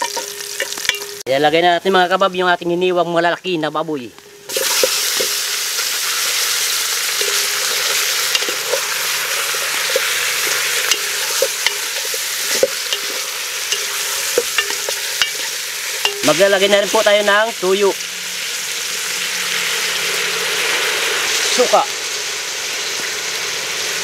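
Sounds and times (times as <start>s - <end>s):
meat sizzling in hot oil: 0.0s - 1.2s, 4.4s - 24.0s
spatula scraping a pot: 7.2s - 16.2s.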